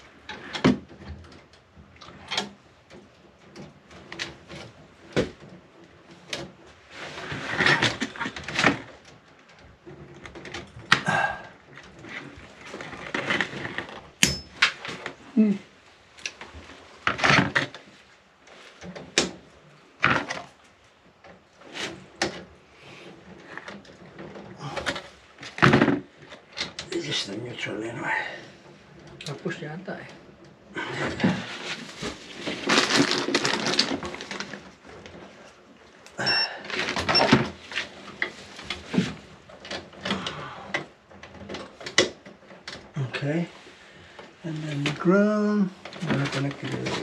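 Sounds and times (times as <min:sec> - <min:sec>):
tool handling noise: 0:09.9 - 0:15.3
short scraping rustles: 0:30.8 - 0:35.6.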